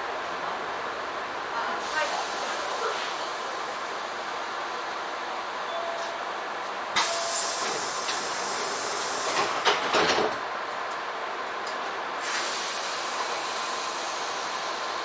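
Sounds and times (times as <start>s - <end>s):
compressed air hissing: 12.2s - 15.0s.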